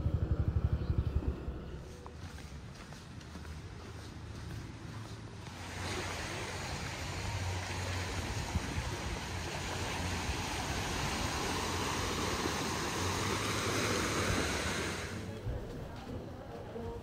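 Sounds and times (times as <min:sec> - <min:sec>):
surf washing on sandy beach: 0:05.4 - 0:15.4.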